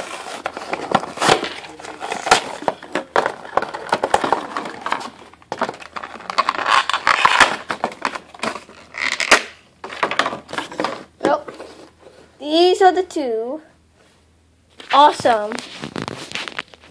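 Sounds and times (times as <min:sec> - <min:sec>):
plastic packaging crackling: 0:00.0 - 0:11.1, 0:15.2 - 0:16.9
packaging rustle: 0:00.0 - 0:11.9, 0:15.3 - 0:16.9.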